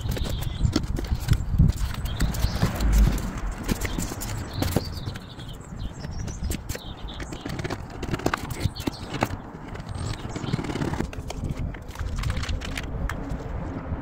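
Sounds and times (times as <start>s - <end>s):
low rumble: 1.8s - 5.0s
plastic scraper scraping silicone: 6.4s - 12.9s.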